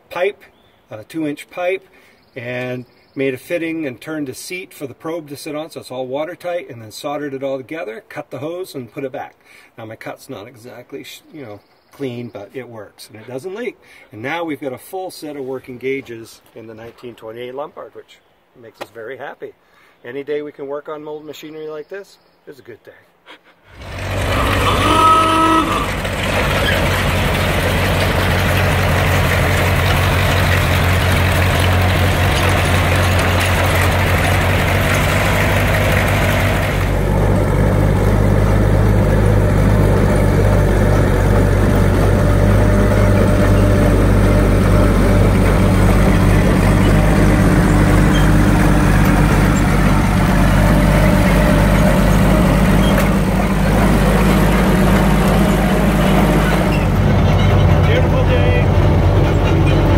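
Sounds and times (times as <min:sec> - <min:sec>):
deep tracked truck engine: 0:23.7 - 0:59.9
tractor engine running: 0:23.7 - 0:59.9
short tooting tone: 0:24.3 - 0:26.0.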